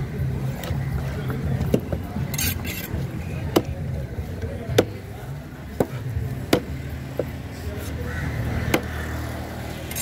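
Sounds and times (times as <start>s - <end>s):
knife chopping on wooden board: 3.5s - 3.8s, 5.8s - 7.3s.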